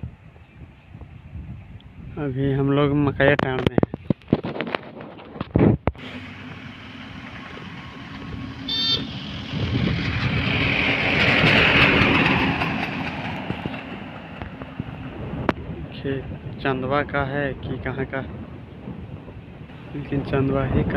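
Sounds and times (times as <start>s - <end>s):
steady engine hum: 5.9s - 16.5s
vehicle passing close by: 6.0s - 15.5s
short horn toot: 8.7s - 9.2s.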